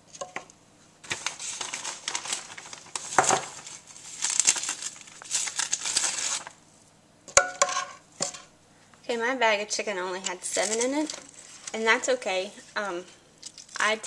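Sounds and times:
plastic bag crinkling: 1.1 - 6.6, 10.4 - 11.9, 13.4 - 14.0.

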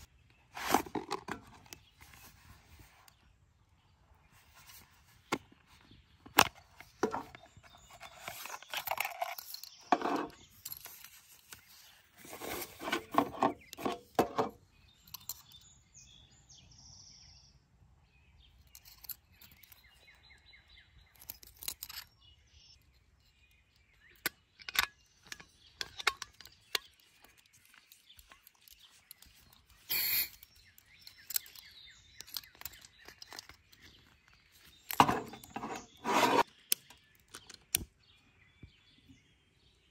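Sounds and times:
rubbing and rustling: 0.0 - 3.1, 6.6 - 14.1, 33.0 - 36.5.

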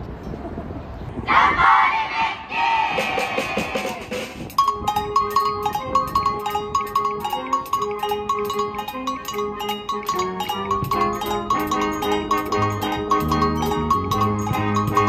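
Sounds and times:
light percussion ticks: 4.5 - 15.0
xylophone repeated-note pattern: 4.5 - 15.0.

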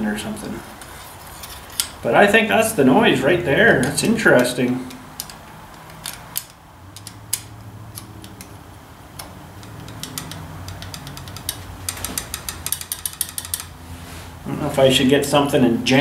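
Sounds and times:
metallic clicks of loose tube: 3.8 - 13.8.

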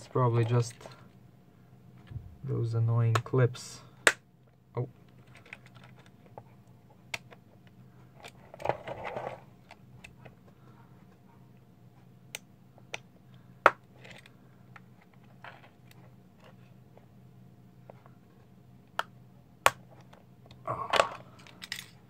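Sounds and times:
faint low hum: 0.0 - 22.0
plastic crackling and scraping: 5.1 - 6.5, 8.1 - 10.3.

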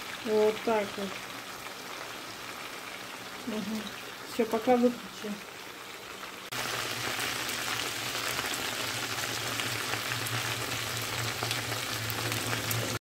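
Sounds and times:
chicken sizzling in a pan: 0.0 - 13.0.

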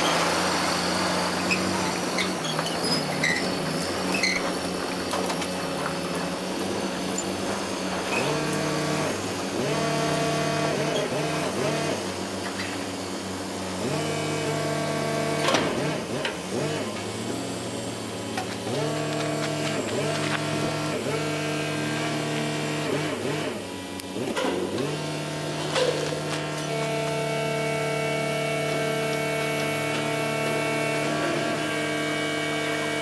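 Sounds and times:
diesel truck engine revving: 0.0 - 33.0.

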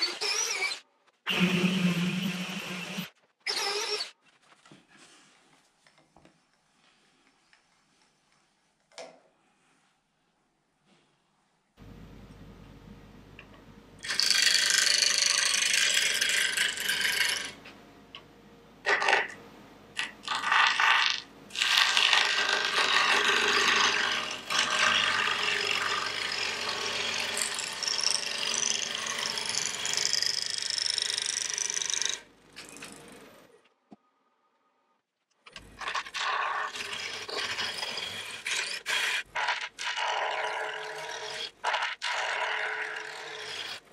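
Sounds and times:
gouge cutting wood on lathe: 14.0 - 17.5, 21.6 - 32.2, 36.2 - 43.8.

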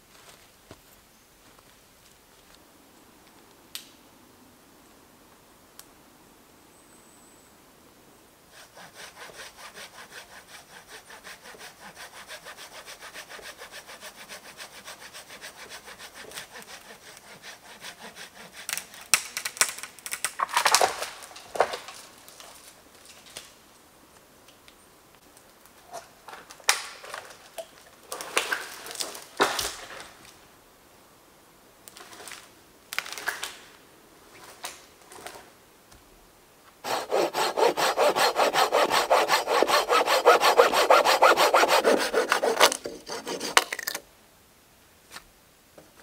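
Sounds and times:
hand saw cutting wood: 8.6 - 19.1, 36.8 - 44.0
wood cracking and snapping: 19.1 - 23.5.

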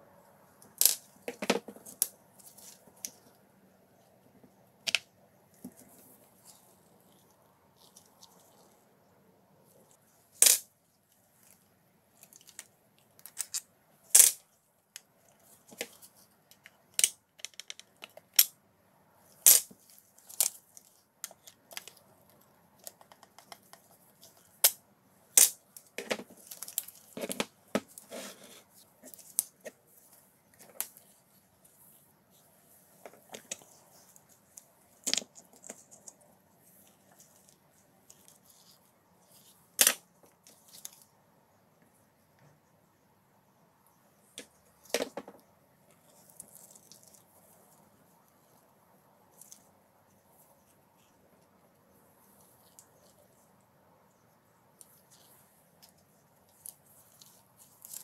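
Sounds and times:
scraping and fiddling: 19.2 - 41.2.

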